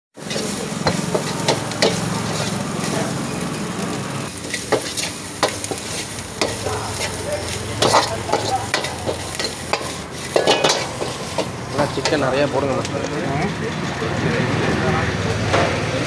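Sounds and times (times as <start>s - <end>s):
metal ladle scraping a wok: 0.2s - 12.6s
noodles sizzling in a wok: 0.2s - 16.0s.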